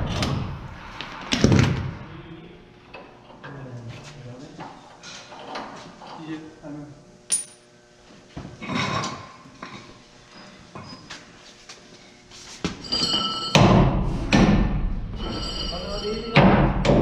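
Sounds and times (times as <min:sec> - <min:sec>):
rushing noise with high whine: 0:00.0 - 0:02.6
metal clanks and knocks: 0:12.7 - 0:17.0.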